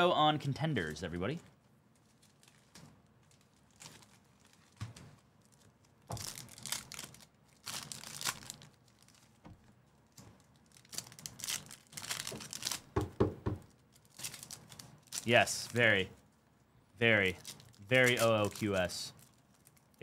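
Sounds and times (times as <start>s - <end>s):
wrappers tearing and crinkling: 1.9s - 9.4s, 10.0s - 13.0s, 13.7s - 16.1s, 17.0s - 20.0s.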